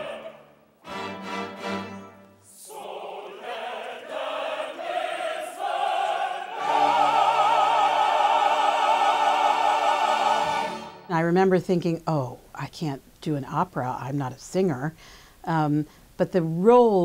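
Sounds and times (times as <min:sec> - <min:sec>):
orchestra playing: 0:00.0 - 0:02.9, 0:06.6 - 0:11.1
opera chorus singing: 0:00.0 - 0:11.1.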